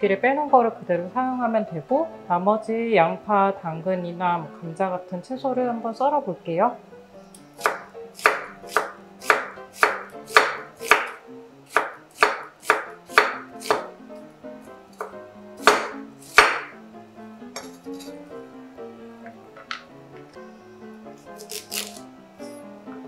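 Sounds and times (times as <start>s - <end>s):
knife chopping onion on wooden board: 7.6s - 14.0s, 15.0s - 16.8s, 21.4s - 22.0s.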